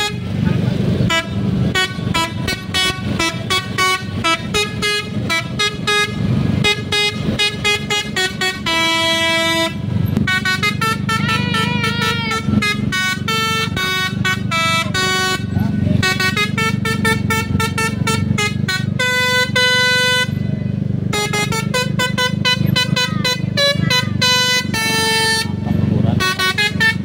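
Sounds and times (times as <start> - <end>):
bus engines running: 0.0 - 27.0
bus musical horns playing a tune: 0.0 - 27.0.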